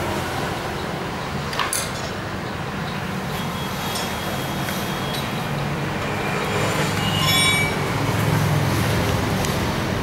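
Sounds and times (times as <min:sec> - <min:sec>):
high ringing tone: 0:03.3 - 0:05.6, 0:06.2 - 0:08.1.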